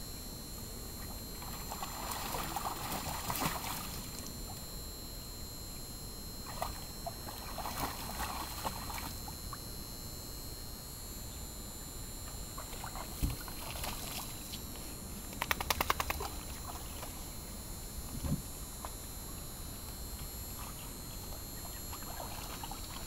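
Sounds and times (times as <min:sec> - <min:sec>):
dogs splashing in water: 0:01.4 - 0:04.1, 0:06.5 - 0:09.2, 0:12.6 - 0:14.3, 0:21.9 - 0:23.0
dog lapping water: 0:12.6 - 0:14.2, 0:21.9 - 0:23.0.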